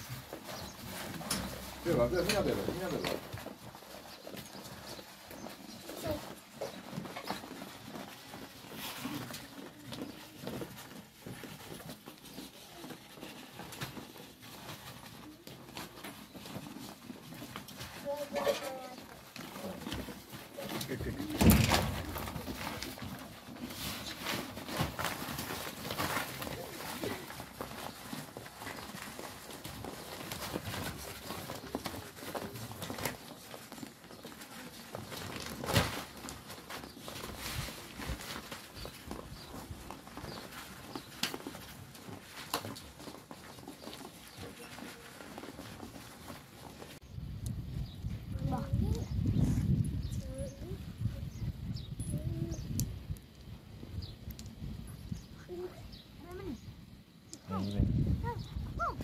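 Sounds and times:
sheep crunching feed: 0.0 - 47.0
hoof steps on concrete: 0.0 - 47.6
hooves shuffling: 0.0 - 59.0.

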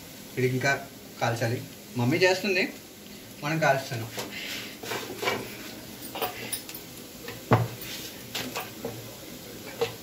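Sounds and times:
clinks of pots and plates: 4.8 - 7.8, 9.7 - 10.0.

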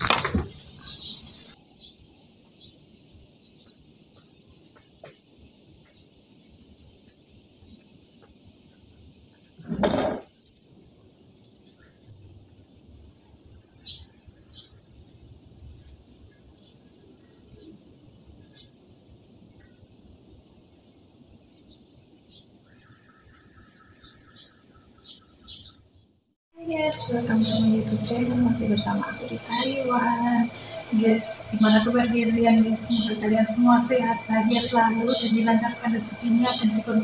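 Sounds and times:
high-pitched insect chorus: 0.0 - 25.8, 26.6 - 37.0
rapid chirping trill: 26.7 - 37.0.

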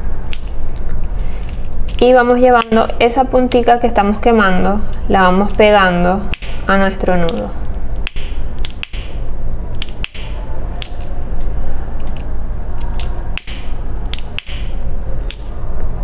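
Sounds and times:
steady noise: 0.0 - 16.0.

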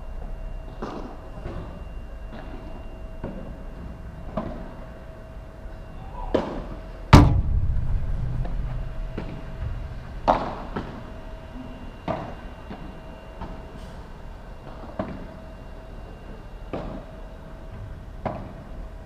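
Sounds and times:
low boom: 7.1 - 12.1
loud thud: 7.1 - 12.3.

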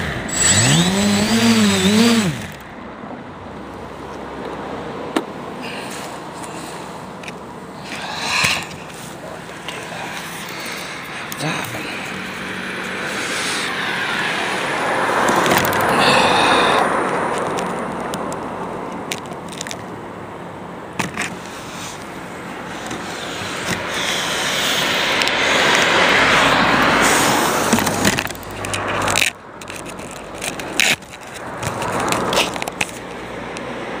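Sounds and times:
quadcopter propellers rushing: 0.0 - 2.7, 7.8 - 16.9, 22.6 - 28.2.

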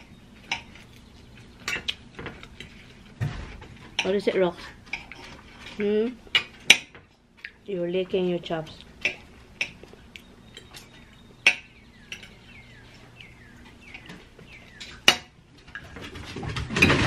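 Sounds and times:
bird chirping: 0.0 - 2.0, 9.7 - 15.2.

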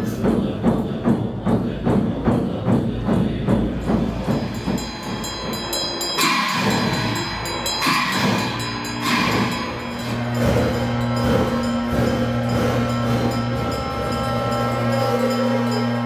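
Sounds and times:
low steady drone: 0.0 - 16.0
sharp crashes: 4.0 - 16.0
ringing bell tone: 4.3 - 16.0.

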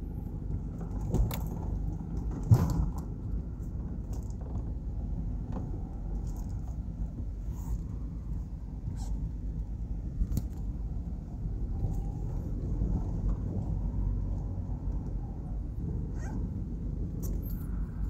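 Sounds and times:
car driving over rough ground: 0.1 - 18.0
light rattles and clicks: 0.3 - 8.5.

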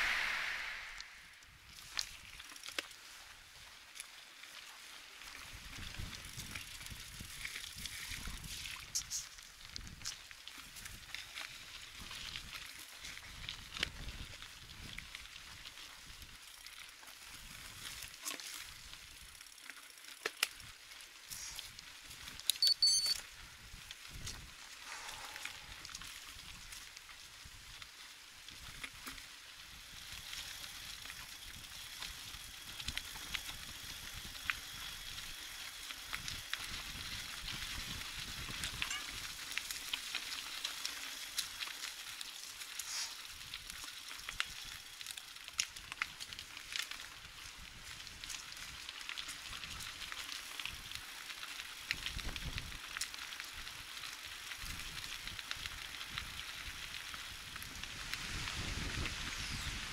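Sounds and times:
wind on microphone: 0.0 - 1.3, 57.5 - 59.9
wind rumbling on microphone: 0.0 - 1.8, 5.5 - 11.2, 11.9 - 16.4, 36.1 - 39.4, 51.9 - 53.0, 53.6 - 59.9
bicycle tyre hiss on pavement: 0.0 - 22.5, 23.2 - 59.9
bicycle clicks and ticks: 1.7 - 59.4.

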